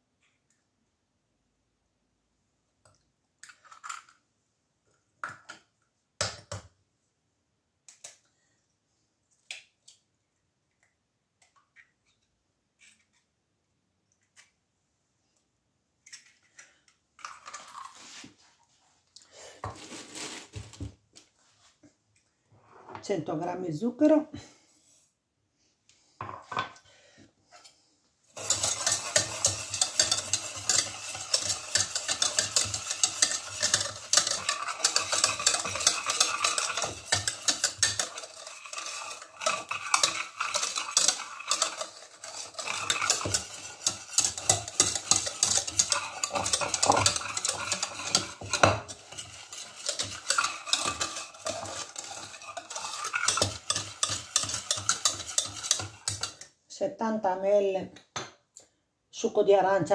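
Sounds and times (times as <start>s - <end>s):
whisk clattering in metal pot: 28.4s - 56.4s.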